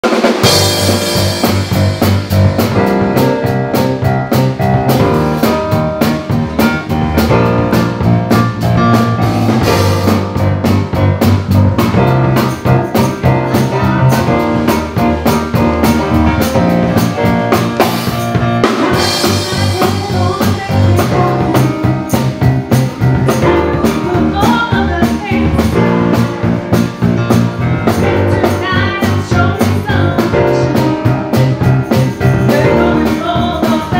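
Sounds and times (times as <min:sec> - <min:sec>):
bass guitar: 0:00.0 - 0:33.9
drum kit: 0:00.0 - 0:33.9
woman singing lead vocal: 0:19.2 - 0:22.0, 0:23.7 - 0:25.8, 0:28.3 - 0:30.9, 0:32.4 - 0:33.9.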